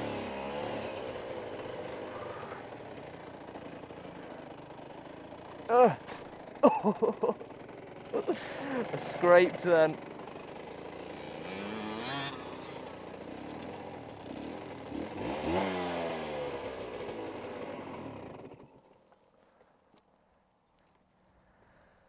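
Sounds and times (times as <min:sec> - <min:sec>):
two-stroke motorcycle engine revving: 0:00.0 - 0:18.9.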